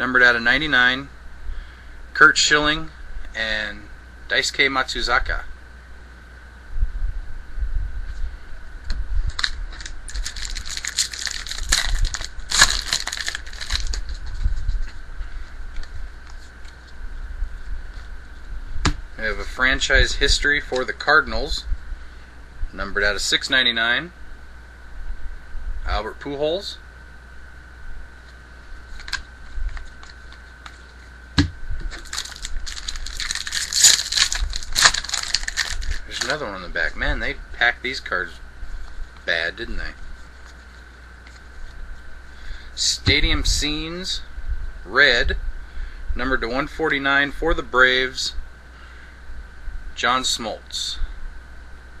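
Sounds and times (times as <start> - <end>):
pack tearing open: 9.3 - 14.4, 32.0 - 36.4
foil wrapper crinkling: 9.3 - 15.0, 31.9 - 36.5
cards rustling and sliding: 9.4 - 15.0, 32.0 - 36.4.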